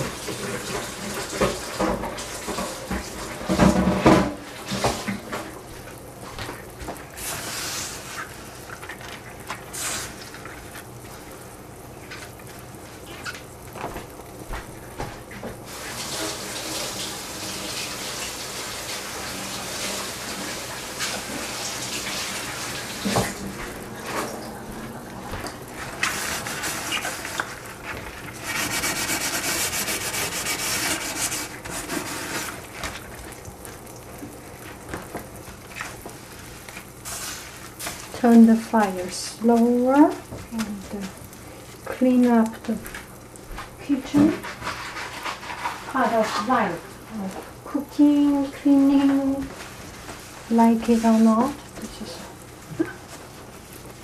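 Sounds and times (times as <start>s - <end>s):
water running from a tap: 0.0s - 54.0s
hiss: 7.2s - 8.5s, 9.7s - 10.2s
cloth scrubbing: 22.1s - 33.1s.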